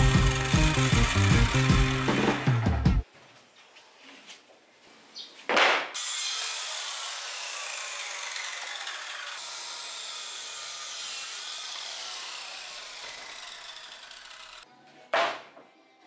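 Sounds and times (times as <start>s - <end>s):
circular saw cutting plywood: 0.0s - 3.0s, 6.0s - 14.6s.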